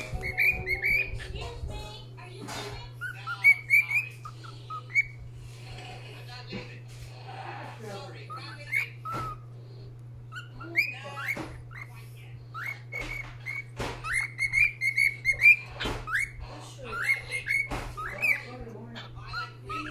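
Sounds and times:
cockatiel whistling: 0.0 - 1.5, 3.0 - 5.2, 8.3 - 9.5, 10.3 - 18.6, 19.3 - 19.9.

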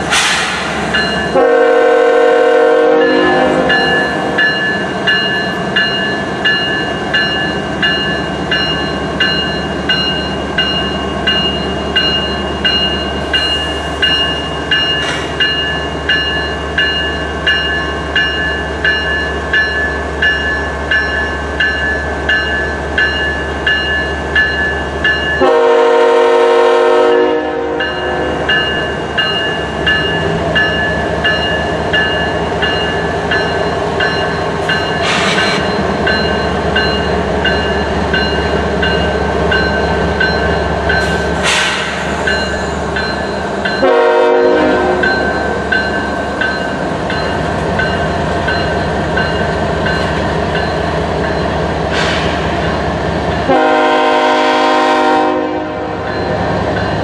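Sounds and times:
freight train rolling past: 0.0 - 57.0
locomotive horn blasts: 1.3 - 4.4, 25.4 - 28.5, 43.8 - 45.2, 53.5 - 56.1.

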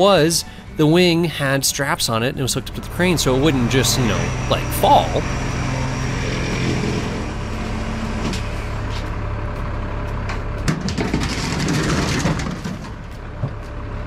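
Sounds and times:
heavy machinery engine rumbling: 0.0 - 14.0
sharp metal clanks and knocks: 10.3 - 13.7.

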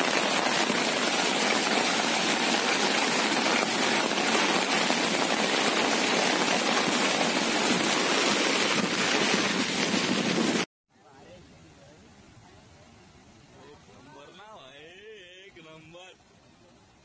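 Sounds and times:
heavy rain falling: 0.0 - 10.7.

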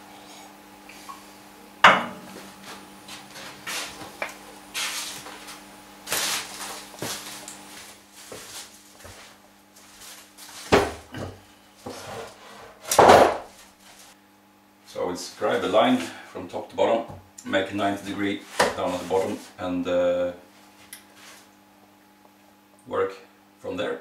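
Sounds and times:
wooden planks scraping: 4.8 - 10.9, 11.8 - 14.1.

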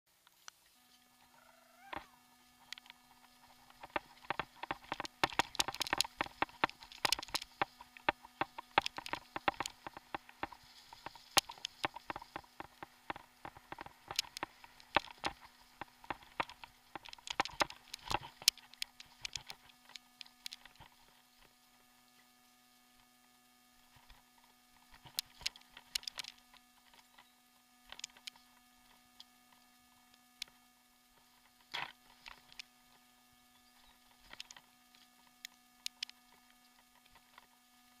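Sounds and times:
faint low hum: 0.1 - 38.0
mountain bike rattling: 3.7 - 20.9.

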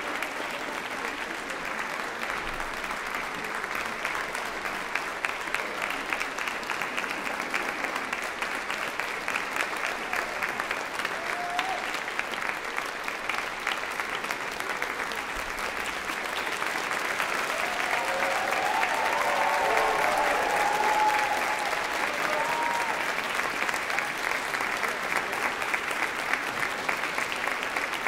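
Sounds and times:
audience clapping: 0.0 - 28.0
people cheering: 9.7 - 12.5, 15.8 - 26.3.

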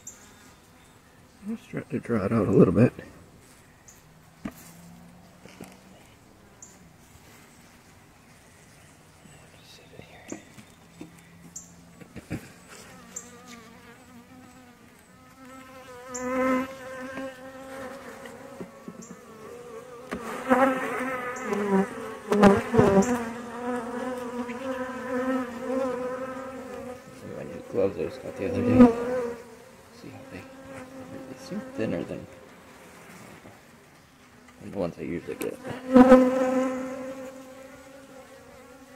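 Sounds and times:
bees buzzing: 9.6 - 38.9.

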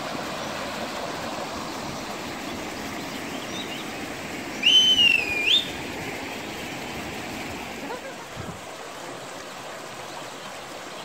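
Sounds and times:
small waterfall rushing: 0.0 - 11.0
high whistled note: 4.6 - 5.7.

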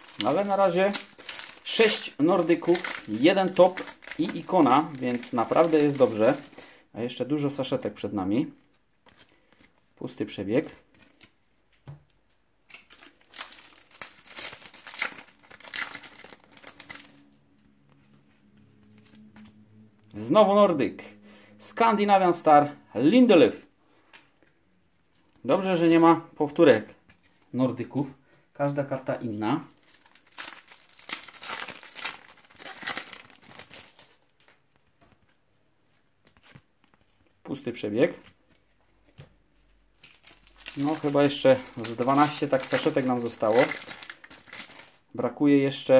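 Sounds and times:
foil packet tearing: 0.0 - 6.7, 12.8 - 17.2, 29.8 - 34.2, 40.0 - 45.0
foil wrapper crinkling: 0.0 - 6.7, 12.7 - 17.2, 29.7 - 34.6, 40.0 - 45.0.

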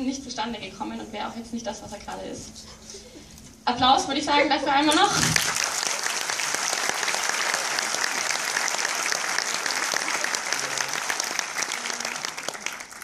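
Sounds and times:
audience applauding: 5.3 - 13.0.

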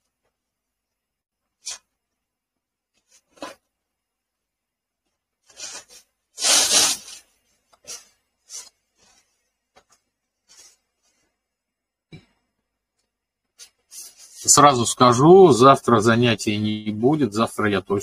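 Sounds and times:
rustling and rubbing noises: 2.9 - 3.8, 5.0 - 11.4, 13.5 - 14.8.

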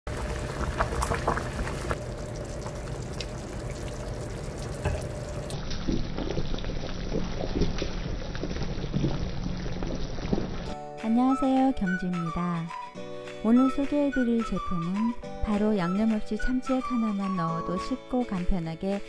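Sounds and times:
soup bubbling at a boil: 0.1 - 10.7.

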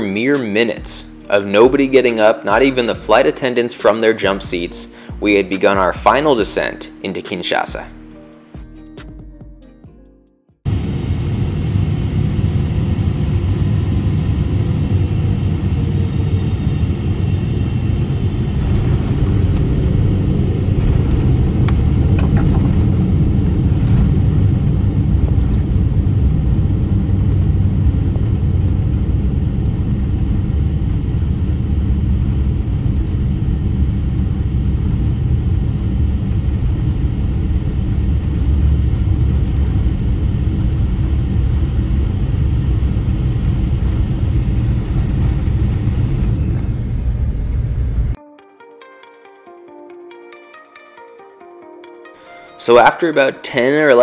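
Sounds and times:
jet engines deep rumble: 0.0 - 8.0, 10.7 - 48.2
airflow: 4.2 - 5.9
wheels on runway: 10.7 - 48.2
light rattles and knocks: 18.6 - 34.4.

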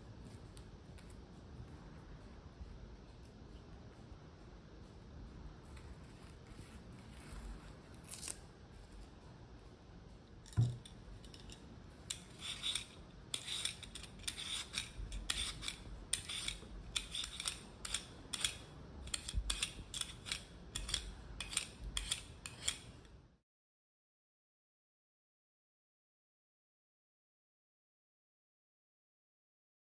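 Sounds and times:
peeler scraping potato skin: 6.0 - 8.5, 11.3 - 23.1.

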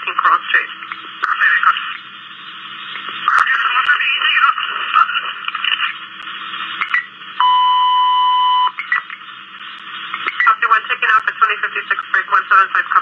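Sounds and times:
radio static: 0.0 - 7.4, 8.6 - 13.0
radio alert tone: 6.8 - 9.1.

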